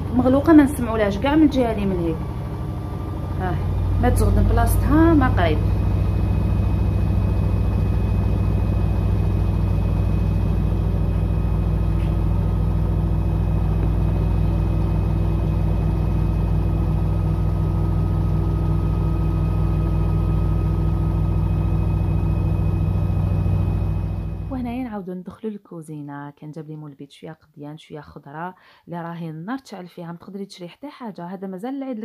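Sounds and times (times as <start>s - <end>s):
high motor whine: 0.0s - 24.7s
washing machine drum spinning: 0.0s - 24.8s.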